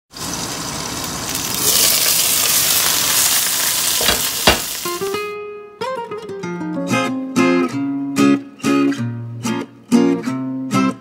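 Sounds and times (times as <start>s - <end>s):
chicken sizzling in oil: 0.1s - 5.2s
sharp knocks: 4.0s - 4.7s
plucked guitar music: 4.2s - 11.0s.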